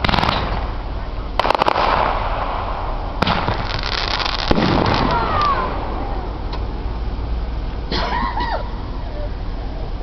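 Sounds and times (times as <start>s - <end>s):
crackle of sparks: 0.0s - 6.7s
fireworks bangs: 0.0s - 6.8s.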